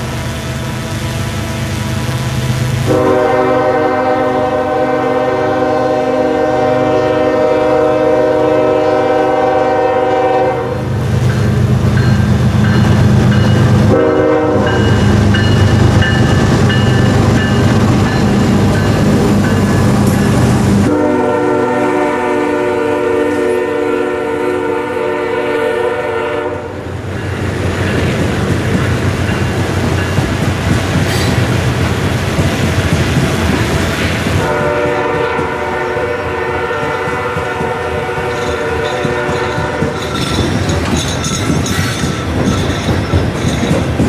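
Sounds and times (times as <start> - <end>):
locomotive air horn blasts: 0.3 - 10.9, 13.8 - 15.1, 20.2 - 26.8, 34.4 - 40.0.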